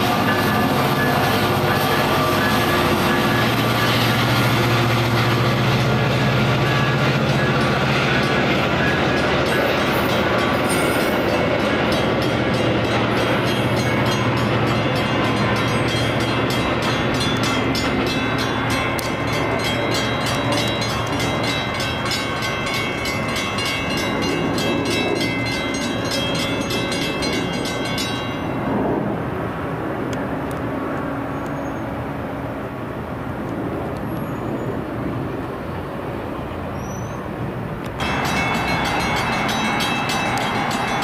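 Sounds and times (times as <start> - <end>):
crossing bell ringing: 0.0 - 28.8, 38.0 - 41.0
train passing: 0.0 - 41.0.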